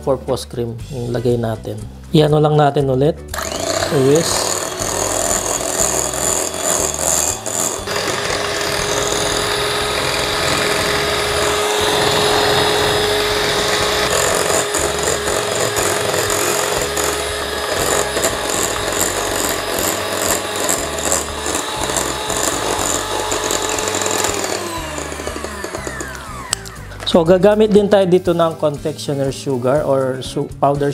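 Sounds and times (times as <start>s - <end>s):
electric hand mixer running: 3.3s - 27.6s.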